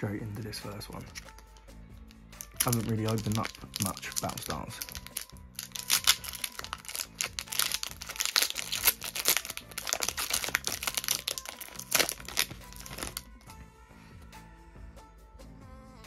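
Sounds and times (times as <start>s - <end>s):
background music: 0.0s - 16.0s
foil wrapper crinkling: 2.4s - 13.3s.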